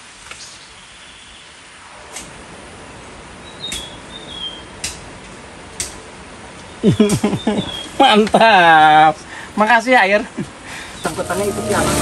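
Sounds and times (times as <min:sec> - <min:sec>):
high chirping call: 0:07.0 - 0:08.0, 0:10.9 - 0:12.0.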